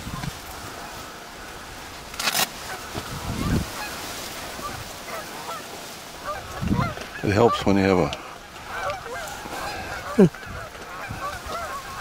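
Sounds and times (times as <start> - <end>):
geese honking: 0.1 - 2.0, 2.6 - 12.0
sharp rustle: 1.9 - 7.2.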